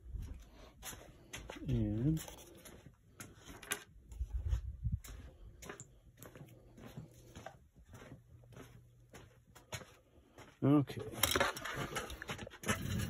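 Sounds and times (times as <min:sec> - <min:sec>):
dull low thumps: 0:04.2 - 0:05.6.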